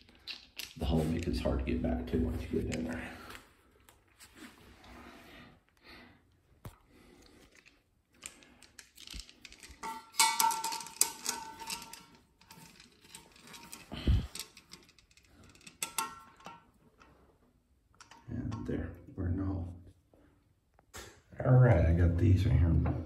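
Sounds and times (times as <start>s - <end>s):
metal hardware clicking and clinking: 7.5s - 17.1s, 17.9s - 18.8s.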